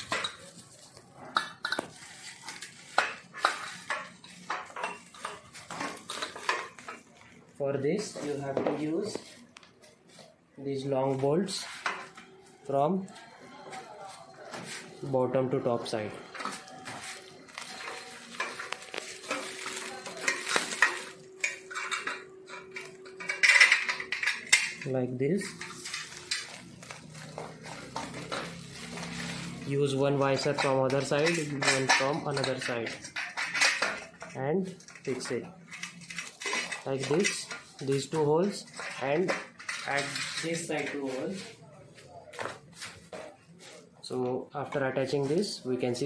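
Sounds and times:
plastic wrap crinkling: 0.0 - 3.9, 16.5 - 21.7, 25.4 - 30.4
metal parts clinking and knocking: 17.7 - 29.1, 30.4 - 37.8, 38.4 - 41.0.

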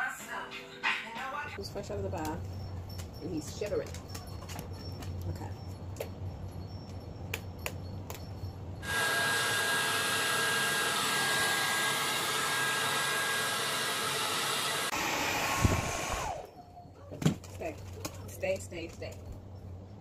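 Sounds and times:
hair dryer blowing: 8.8 - 16.5.

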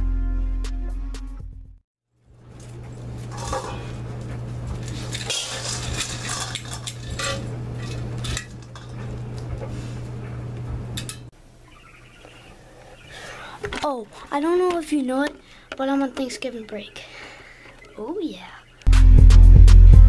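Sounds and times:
low hum: 2.3 - 13.6
dry kibble rattling into metal bowl: 2.6 - 4.0, 4.7 - 9.1.

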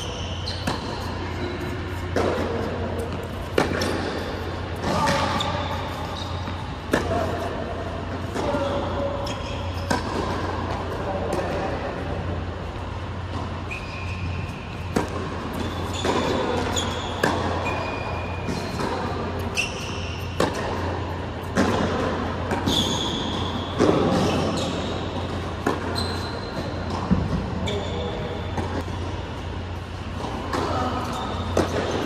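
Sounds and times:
sneaker squeaks on court: 0.0 - 2.2, 3.0 - 6.8, 8.5 - 10.2, 13.1 - 20.6, 22.5 - 29.8, 30.7 - 32.0
low hall hum: 0.0 - 32.0.

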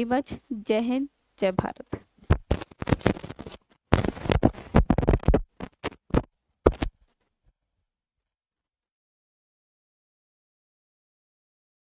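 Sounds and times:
microphone being handled: 1.6 - 7.3.

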